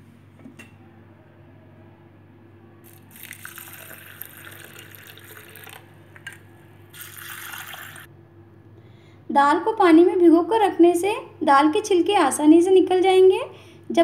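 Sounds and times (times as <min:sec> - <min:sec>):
water pouring into a bowl: 0:02.8 - 0:08.1.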